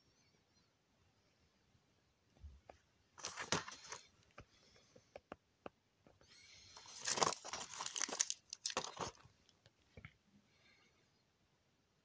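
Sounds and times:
blister packs crinkling: 3.2s - 4.0s, 6.8s - 9.4s.

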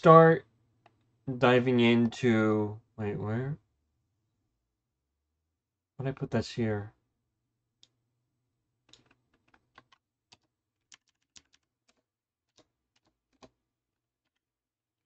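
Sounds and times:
computer keyboard typing: 8.9s - 13.6s, 14.2s - 14.5s.

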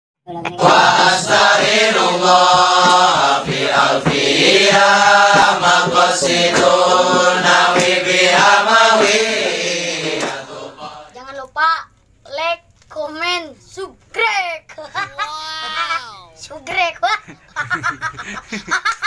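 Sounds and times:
voices singing long held notes: 0.3s - 11.2s.

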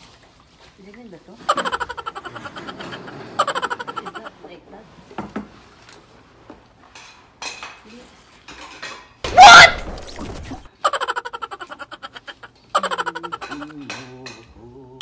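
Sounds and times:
rapid pulsed laughter: 1.5s - 4.3s, 10.8s - 13.6s.

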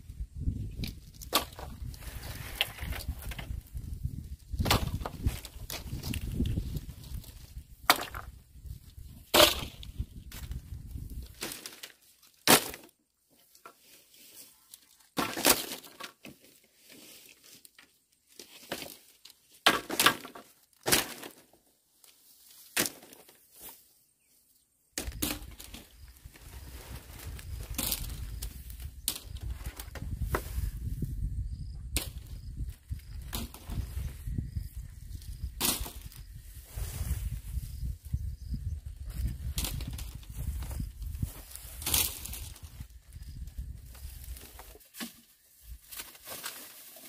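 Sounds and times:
bamboo knocking and cracking: 0.7s - 3.6s, 4.5s - 8.4s, 9.1s - 10.6s, 11.2s - 13.0s, 15.2s - 16.5s, 17.8s - 21.5s, 22.7s - 23.8s, 25.0s - 26.0s, 27.6s - 30.6s, 31.9s - 32.4s, 33.0s - 33.9s, 35.5s - 36.2s, 39.4s - 40.8s, 41.8s - 42.7s, 43.9s - 47.0s.

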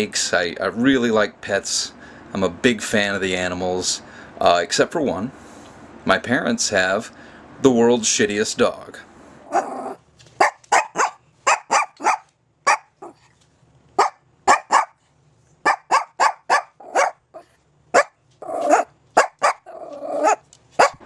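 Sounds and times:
small dog yapping: 9.5s - 13.3s, 14.0s - 15.0s, 15.6s - 21.0s.

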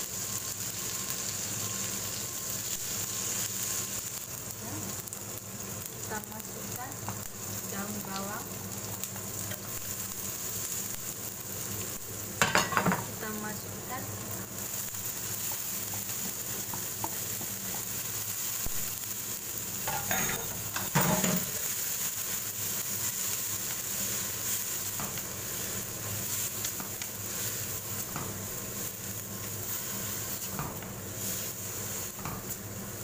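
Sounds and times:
bean sprouts sizzling in oil: 0.0s - 33.0s
spatula tapping and scraping pan: 15.5s - 18.0s.

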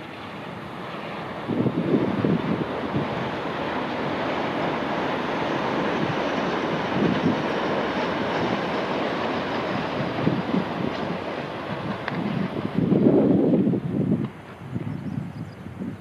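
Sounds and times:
high-speed train passing: 0.0s - 16.0s.

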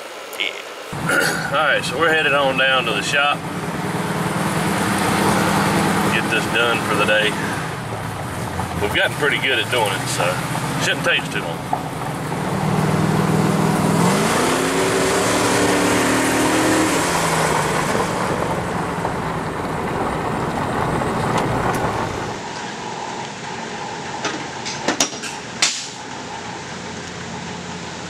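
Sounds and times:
fan hum: 0.0s - 28.0s
road noise on gravel: 0.4s - 28.0s
vehicle engine revving: 0.9s - 23.0s.

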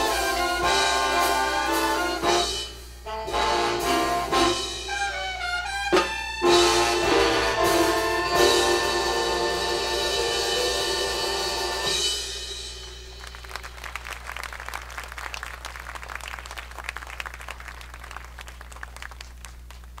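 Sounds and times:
big band final chord: 0.0s - 13.7s
audience clapping: 12.8s - 20.0s.

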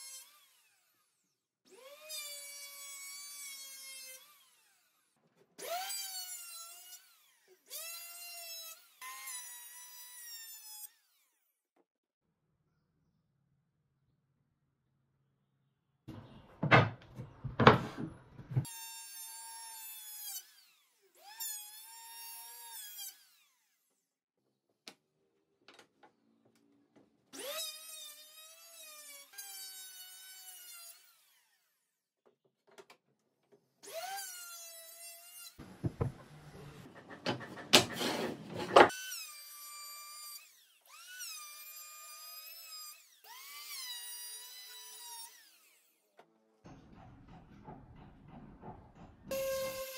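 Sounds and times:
circular saw: 33.8s - 46.1s, 49.2s - 49.9s
electric planer: 49.3s - 49.9s.

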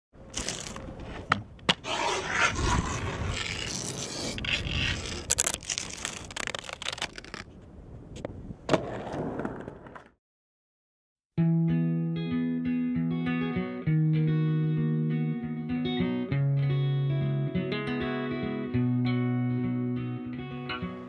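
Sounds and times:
grip tape scraping and rustling: 0.3s - 7.6s.

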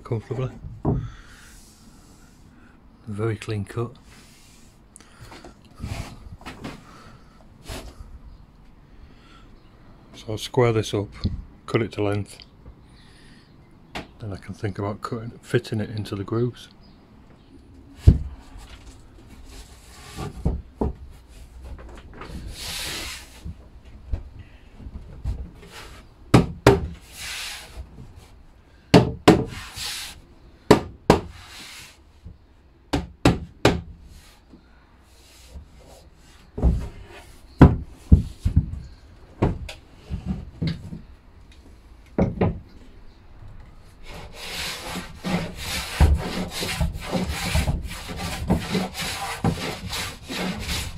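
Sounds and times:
wooden boards knocking and sliding: 0.3s - 1.2s, 19.9s - 22.5s, 24.9s - 27.0s, 36.4s - 41.1s, 42.2s - 42.7s, 44.1s - 50.9s
wood scraping: 4.1s - 8.1s, 18.0s - 23.6s, 29.3s - 30.2s, 31.1s - 32.0s, 35.1s - 41.1s, 44.0s - 50.9s
hand plane shaving wood: 44.0s - 50.9s.

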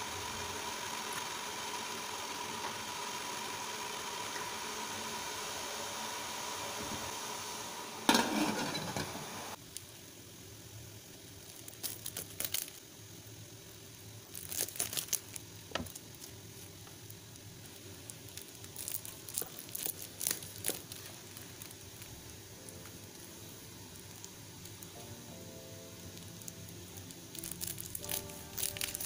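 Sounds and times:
plastic wrapping crinkling: 11.3s - 12.9s, 14.2s - 29.0s.

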